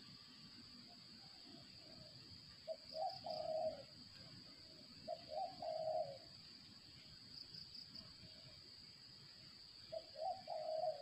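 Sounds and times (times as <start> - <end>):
high insect drone: 0.0 - 11.0
dove cooing: 2.7 - 3.9, 5.1 - 6.3, 9.9 - 11.0.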